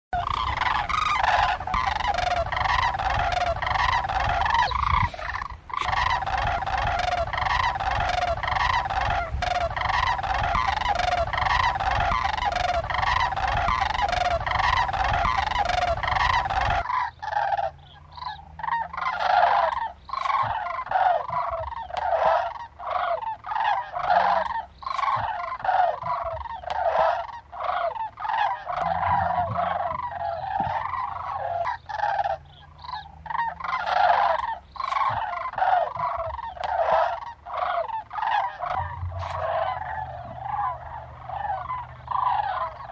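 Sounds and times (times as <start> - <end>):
cranes calling: 0.2 - 42.9
low rumble: 28.7 - 33.8, 38.5 - 42.9.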